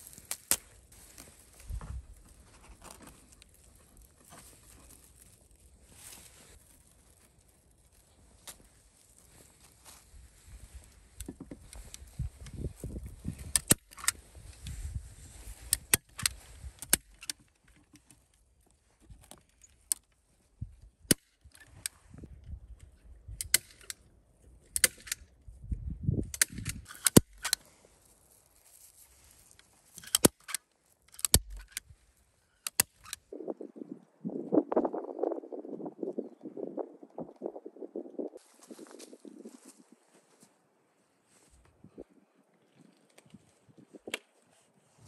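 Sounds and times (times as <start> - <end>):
rustling and handling noise: 0.0 - 20.8, 26.4 - 40.6
staple gun snapping: 30.0 - 31.8.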